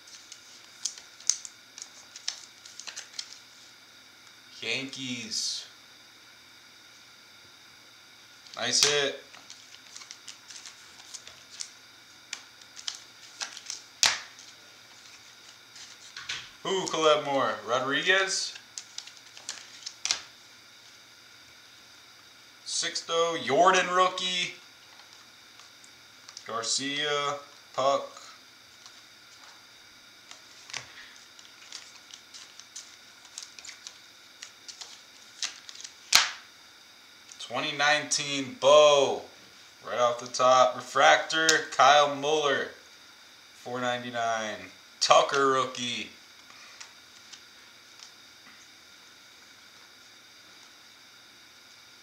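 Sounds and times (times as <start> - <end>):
cards clicking and sliding: 0.0 - 3.4, 8.5 - 11.7, 12.3 - 17.0, 18.5 - 20.3, 30.2 - 36.5
card snapping: 12.3 - 14.5, 18.8 - 20.3, 31.6 - 36.4.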